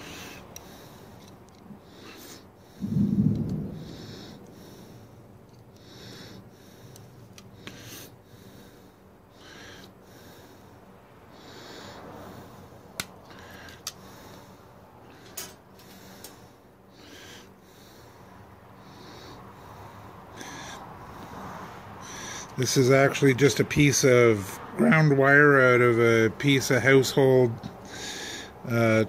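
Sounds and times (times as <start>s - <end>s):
person breathing close: 0.0s - 22.6s, 27.8s - 28.7s.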